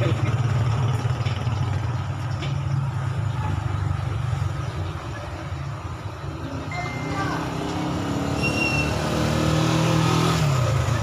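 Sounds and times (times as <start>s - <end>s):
engine idling: 0.0s - 6.2s.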